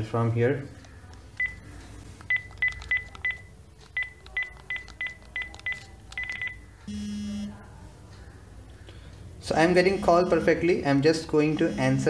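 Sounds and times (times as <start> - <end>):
phone keypad beeps: 1.4 - 1.6, 2.2 - 7.5.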